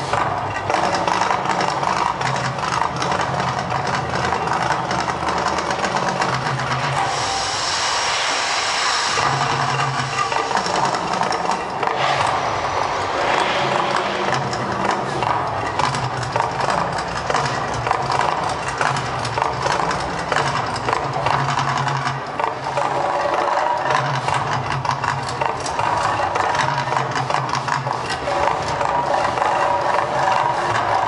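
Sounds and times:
rapid percussive strikes: 0.0s - 31.0s
pulsing low rumble: 6.7s - 18.1s.

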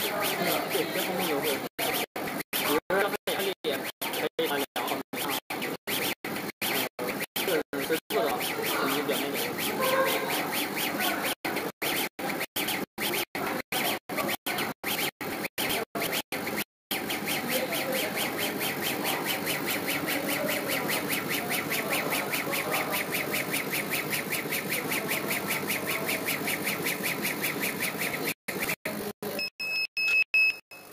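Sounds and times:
laser engraver mechanical pulsing: 0.0s - 29.5s.

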